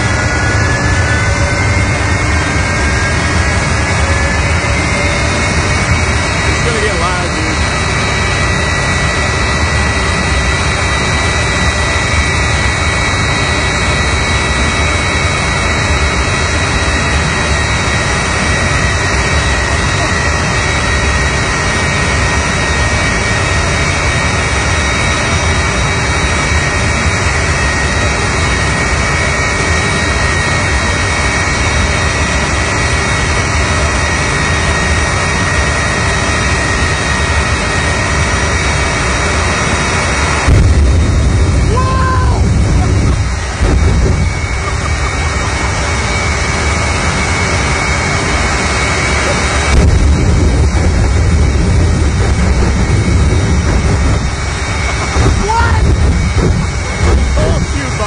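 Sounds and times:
jet engine running: 0.0 - 58.0.

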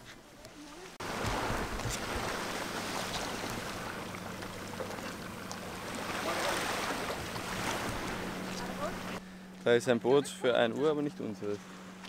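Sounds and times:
small waves at water's edge: 0.0 - 9.2
boat engine hum: 0.0 - 12.0.

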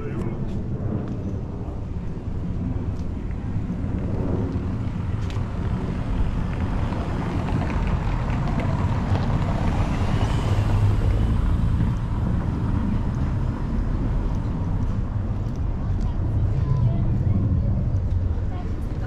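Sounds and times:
distant traffic: 0.0 - 19.0
wind on microphone: 0.0 - 19.0
footsteps on cobbles: 2.8 - 10.3, 11.8 - 16.9.

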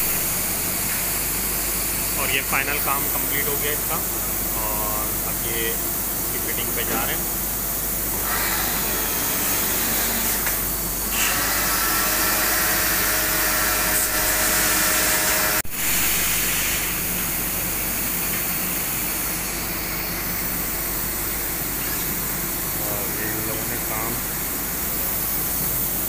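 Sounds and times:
steady hiss: 0.0 - 8.1, 15.7 - 26.0
pressure washer spraying water: 12.4 - 26.0.

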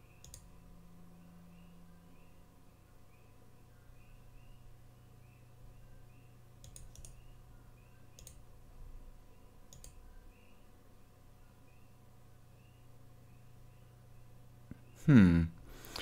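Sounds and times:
faint high chirps: 0.0 - 15.4
steady low hum: 0.0 - 16.0
computer mouse clicks: 0.1 - 0.5, 6.6 - 7.3, 8.1 - 8.5, 9.7 - 10.0.

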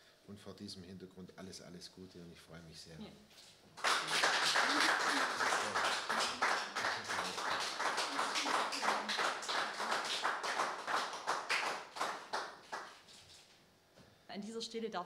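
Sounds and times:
people applauding: 3.8 - 13.2.

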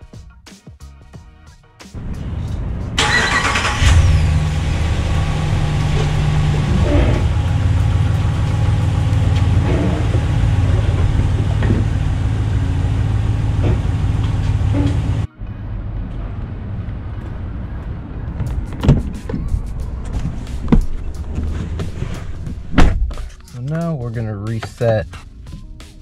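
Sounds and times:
car engine idling: 2.0 - 23.4
engine cranking: 3.0 - 4.6.

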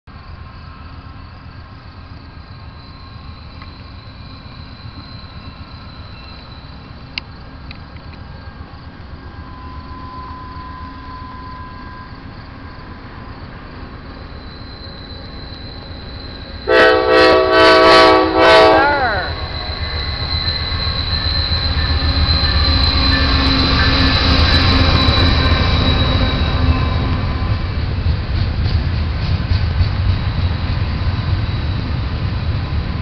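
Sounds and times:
diesel freight train rumble: 0.1 - 33.0
locomotive air horn blasts: 16.7 - 19.6.

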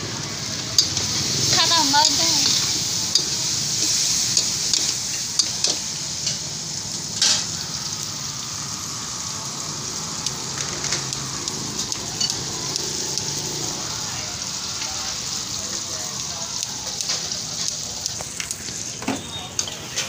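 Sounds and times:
food sizzling in a wok: 0.0 - 20.0.

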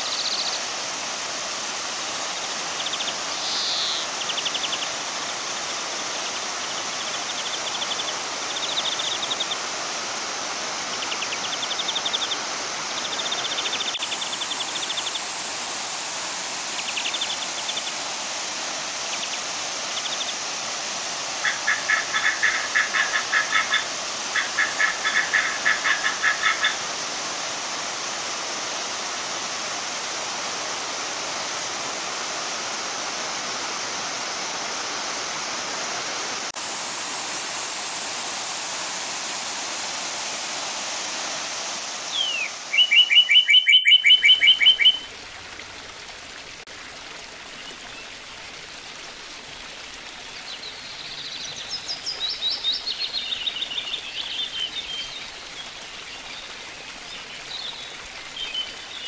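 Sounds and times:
flowing water: 0.0 - 59.0
waterfall rushing: 0.0 - 59.0
fast bird trill: 42.2 - 45.0.

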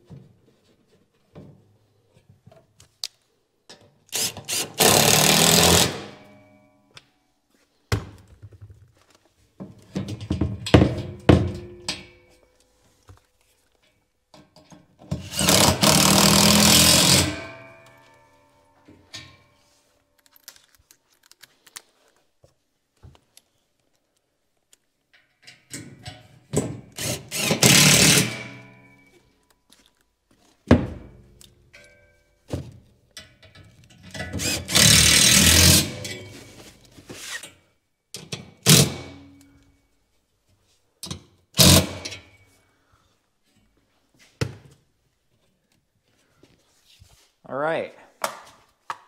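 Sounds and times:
impact driver hammering screws: 4.1 - 6.3, 15.1 - 17.6, 26.6 - 28.8, 34.1 - 36.2, 38.6 - 39.3, 41.6 - 42.2.

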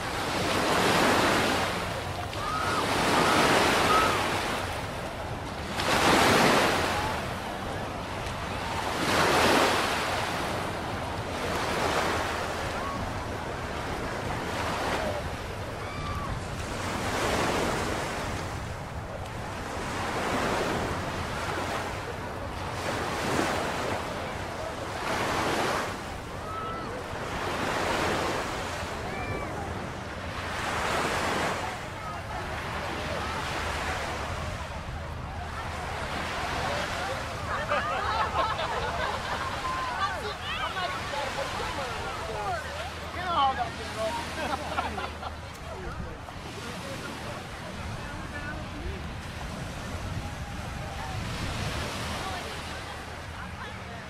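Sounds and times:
small waves washing up beach: 0.0 - 54.0
wind on microphone: 47.5 - 52.8.

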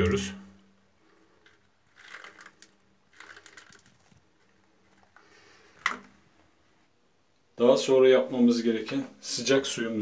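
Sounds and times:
granules rattling in a drain: 1.0 - 5.2.

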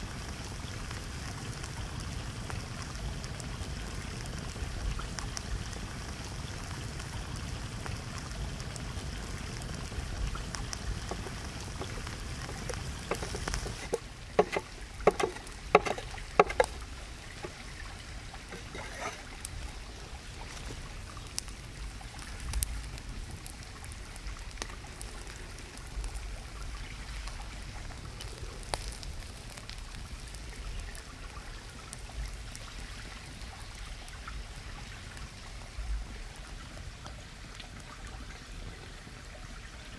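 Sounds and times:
wood fire crackling: 0.0 - 38.2
sharp knocks: 11.1 - 16.8.

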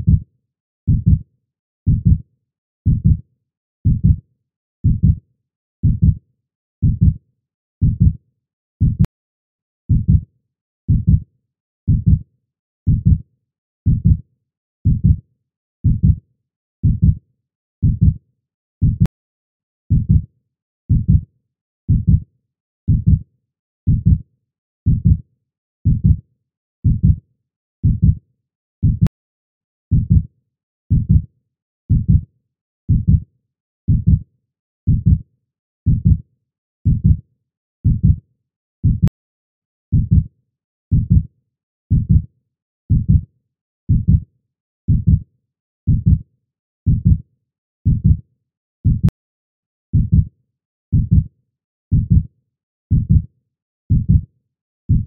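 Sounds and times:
heartbeat thumps: 0.0 - 0.2, 1.9 - 2.2, 2.9 - 3.2, 3.8 - 4.2, 4.8 - 5.2, 5.8 - 6.2, 7.8 - 8.1, 8.8 - 9.1, 9.9 - 10.2, 10.9 - 11.2, 12.9 - 13.2, 13.9 - 14.2, 14.9 - 15.2, 15.8 - 16.2, 17.8 - 18.2, 18.8 - 19.1, 20.9 - 21.2, 21.9 - 22.2, 22.9 - 23.2, 23.9 - 24.2, 24.9 - 25.2, 25.9 - 26.2, 26.9 - 27.2, 27.8 - 28.2, 28.8 - 29.1, 31.9 - 32.2, 32.9 - 33.2, 33.9 - 34.2, 34.9 - 35.2, 36.9 - 37.2, 37.9 - 38.2, 38.8 - 39.2, 40.0 - 40.3, 40.9 - 41.2, 41.9 - 42.2, 42.9 - 43.2, 43.9 - 44.2, 44.9 - 45.2, 45.9 - 46.2, 47.9 - 48.2, 48.9 - 49.2, 50.0 - 50.3, 51.0 - 51.2, 51.9 - 52.2, 52.9 - 53.2, 53.9 - 54.2.

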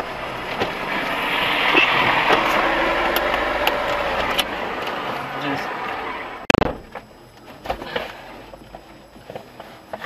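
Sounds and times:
road traffic: 0.0 - 8.9.

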